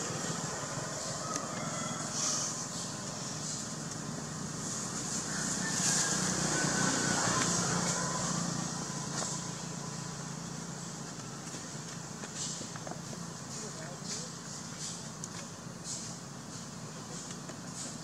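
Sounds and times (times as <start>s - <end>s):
high hiss: 0.0s - 6.8s.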